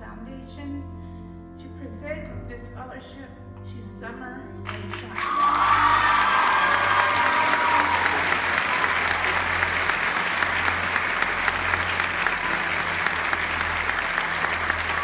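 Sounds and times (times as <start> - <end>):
audience applauding: 4.7 - 15.0.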